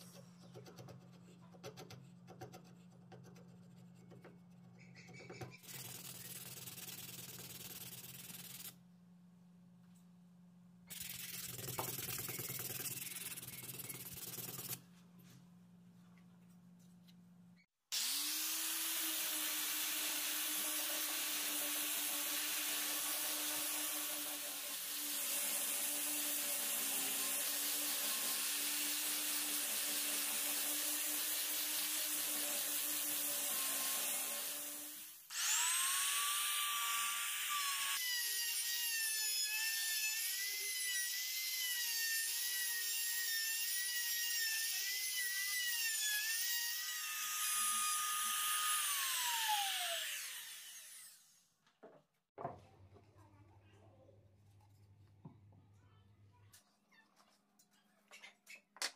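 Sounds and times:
angle grinder sanding wood: 18.0s - 38.8s
router whine cutting wood: 35.3s - 51.2s.

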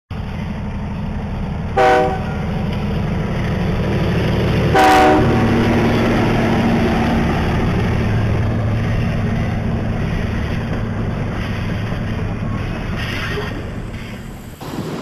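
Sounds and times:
low engine rumble: 0.1s - 15.0s
locomotive horn blasts: 1.8s - 2.4s, 4.7s - 5.5s.

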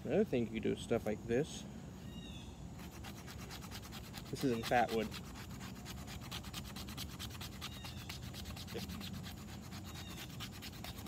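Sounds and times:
knife shaving wood: 2.8s - 11.0s.

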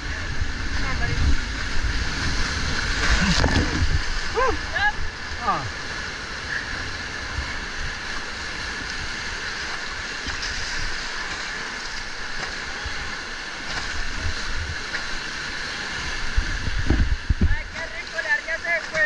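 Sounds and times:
wind buffeting on microphone: 0.0s - 5.4s, 12.8s - 18.2s
whitewater rapids rushing: 0.0s - 19.0s.

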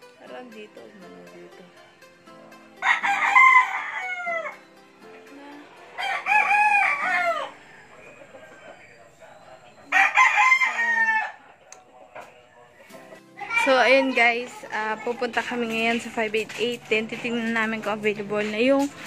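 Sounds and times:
rooster crowing: 2.8s - 4.6s, 6.0s - 8.0s, 9.9s - 11.5s.

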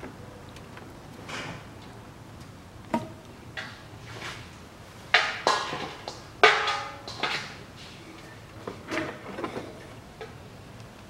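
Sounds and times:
hand tools clanking on metal: 5.1s - 7.7s.

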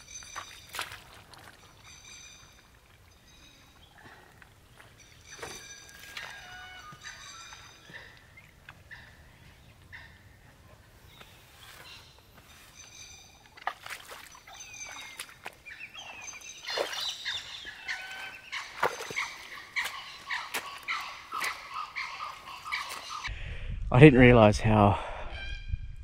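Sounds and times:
boots stepping in swamp mud: 0.0s - 3.0s, 4.7s - 8.7s, 13.4s - 23.3s
wild birds calling: 0.0s - 23.3s.

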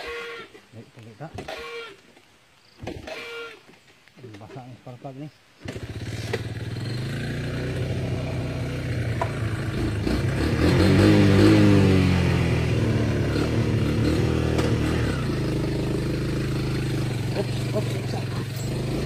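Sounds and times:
motorcycle engine revving: 5.6s - 19.0s.

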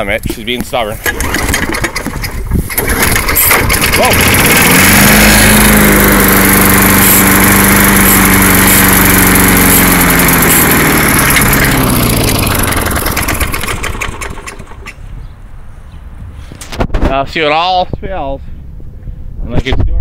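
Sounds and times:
lawn mower engine running: 0.9s - 15.1s.

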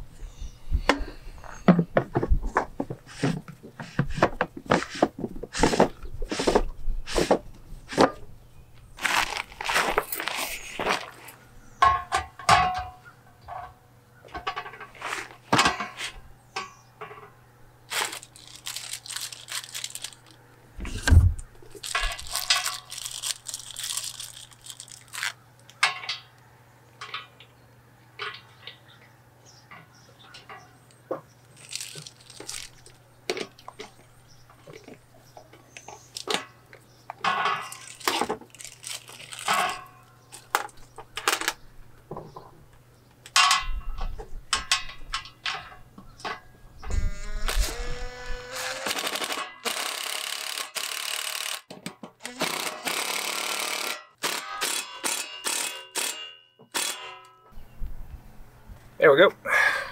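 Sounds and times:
paper rustling: 9.0s - 11.4s, 17.9s - 25.4s.

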